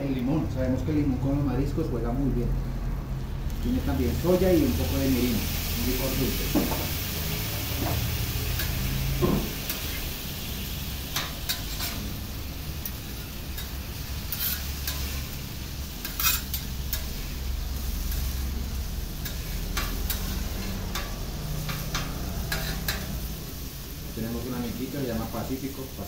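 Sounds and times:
food sizzling on a griddle: 0:02.8 - 0:26.0
metal utensils clinking and scraping: 0:07.6 - 0:10.0, 0:11.1 - 0:12.2, 0:12.8 - 0:15.4, 0:16.0 - 0:17.4, 0:19.2 - 0:23.2.

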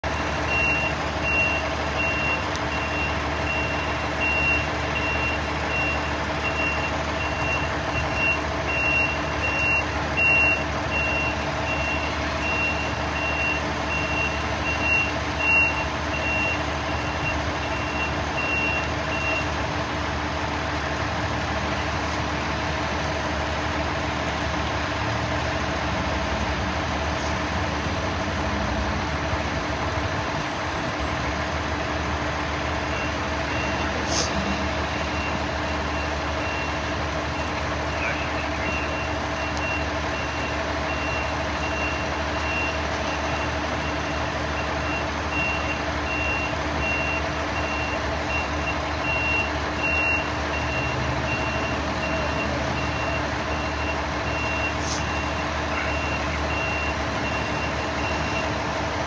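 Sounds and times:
vehicle backup alarm beeping: 0:00.0 - 0:19.6, 0:32.3 - 0:58.7
heavy rain: 0:00.0 - 0:59.0
truck engines idling: 0:00.0 - 0:59.0.

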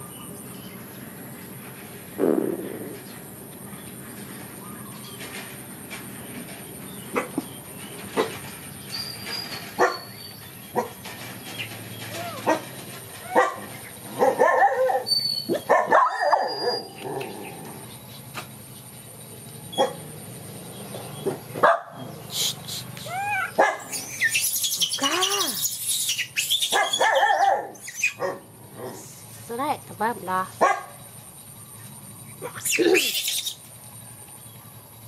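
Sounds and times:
animal yelping calls: 0:12.0 - 0:17.3, 0:22.3 - 0:28.4, 0:32.4 - 0:33.6.

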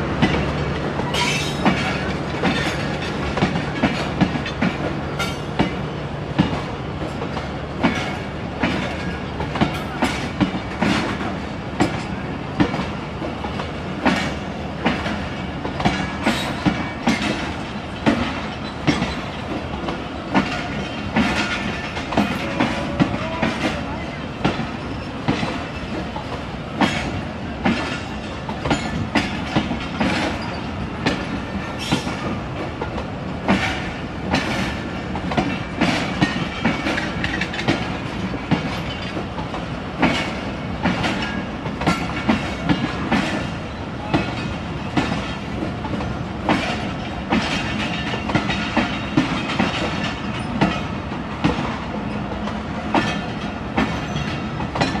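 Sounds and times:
train coaches rumbling past: 0:00.0 - 0:55.0
train wheels clicking over rail joints: 0:00.1 - 0:55.0.

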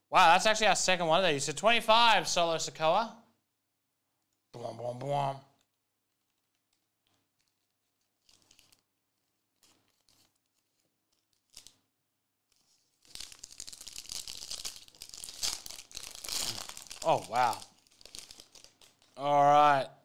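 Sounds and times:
wrapper crinkling and tearing: 0:05.6 - 0:19.2.

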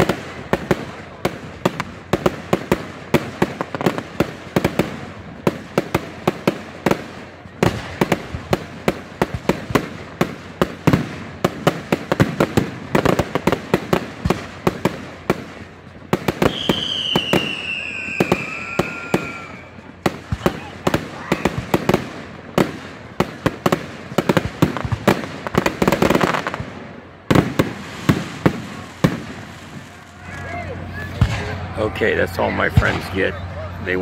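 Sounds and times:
whistling firework: 0:00.0 - 0:26.6, 0:27.2 - 0:34.0
fireworks cracking and popping: 0:00.0 - 0:34.0.

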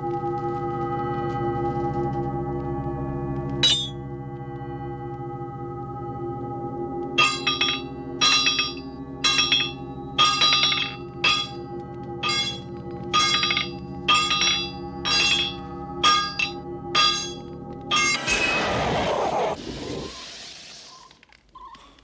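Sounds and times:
steady droning tone: 0:00.4 - 0:18.2
hammer ringing on anvil: 0:03.6 - 0:04.0, 0:07.2 - 0:11.6, 0:12.2 - 0:18.2.

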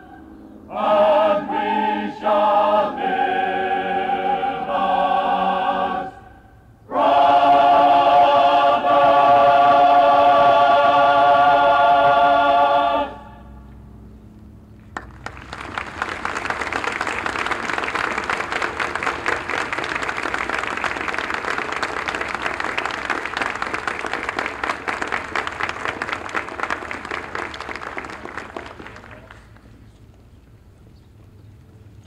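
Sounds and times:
audience applauding: 0:15.0 - 0:29.8.

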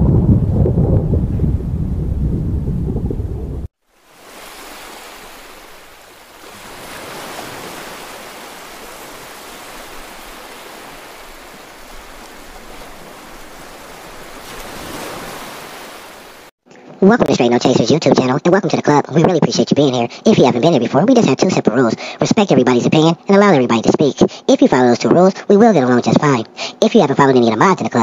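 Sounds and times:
deep loud rumble: 0:00.0 - 0:03.7.

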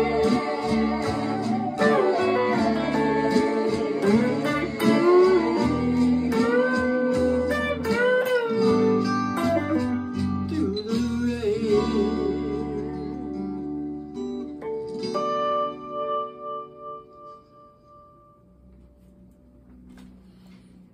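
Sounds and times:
bass line: 0:00.0 - 0:14.3
electric guitar bluesy lead: 0:00.0 - 0:18.3.

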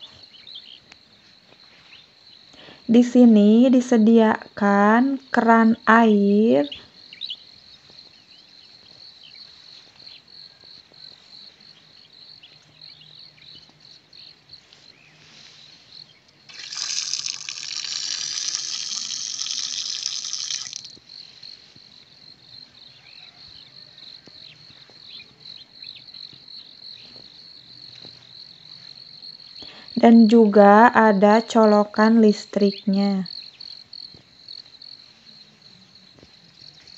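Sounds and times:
crickets trilling: 0:00.0 - 0:36.9
water gushing from tap: 0:16.5 - 0:20.9.

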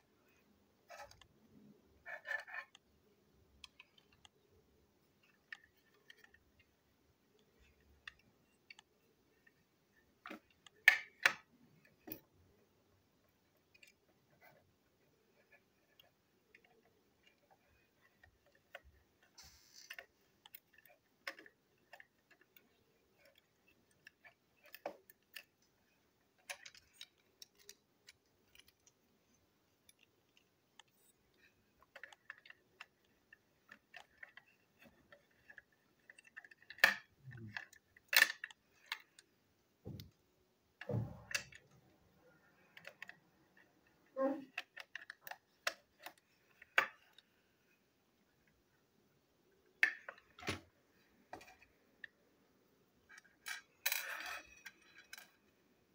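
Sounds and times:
plastic toy parts clicking: 0:02.0 - 0:04.6, 0:05.2 - 0:12.3, 0:15.2 - 0:39.3, 0:42.6 - 0:47.4, 0:53.0 - 0:55.6.

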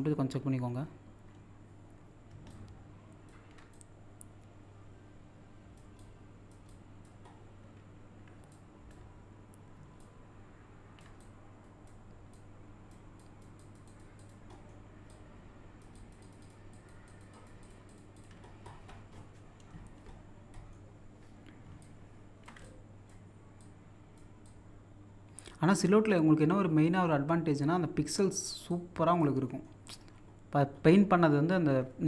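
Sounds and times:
steady low hum: 0:00.0 - 0:32.0
mouse and keyboard clicks: 0:15.8 - 0:20.8.

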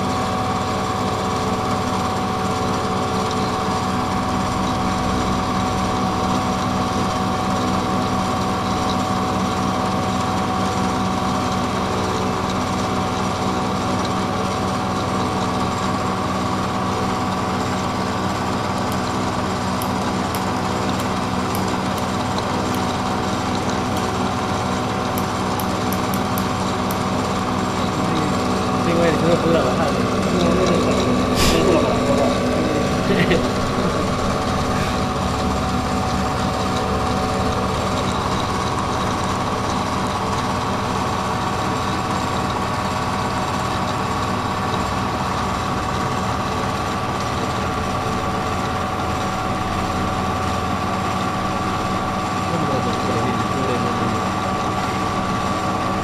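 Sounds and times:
milling machine hum: 0:00.0 - 0:56.0
end mill cutting metal: 0:18.3 - 0:40.6.

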